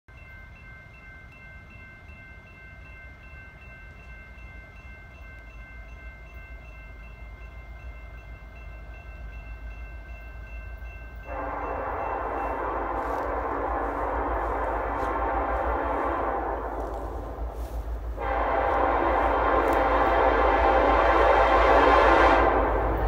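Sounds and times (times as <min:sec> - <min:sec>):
freight train rumble: 0:00.1 - 0:23.0
railroad crossing bell ringing: 0:00.1 - 0:23.0
locomotive air horn: 0:11.2 - 0:23.0.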